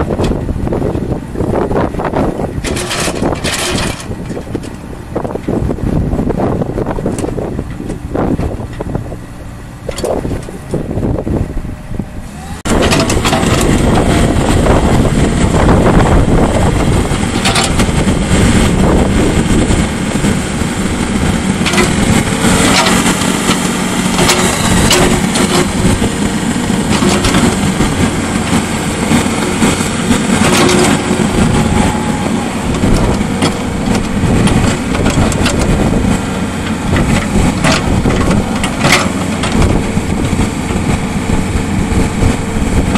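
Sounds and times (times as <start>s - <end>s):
excavator engine running: 0.0s - 42.9s
metal clanks: 2.6s - 4.8s, 12.7s - 13.8s, 21.6s - 22.0s, 24.1s - 25.8s.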